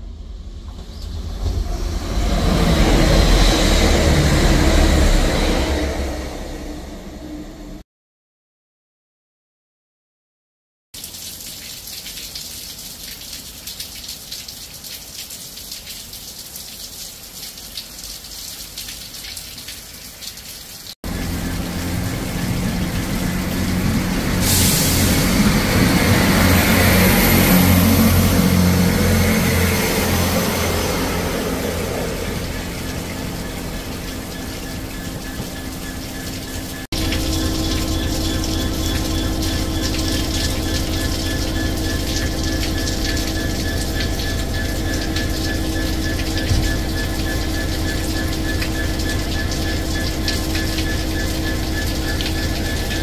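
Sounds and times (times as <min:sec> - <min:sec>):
rain hissing: 0:00.0 - 0:07.2, 0:11.0 - 0:53.0
diesel locomotive idling: 0:00.0 - 0:07.8, 0:21.1 - 0:53.0.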